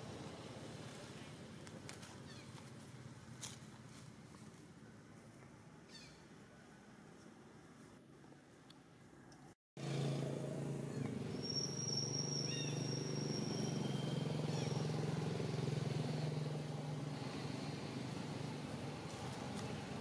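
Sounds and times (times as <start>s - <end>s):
low engine hum: 9.8s - 20.0s
thin high whistles: 11.3s - 14.9s.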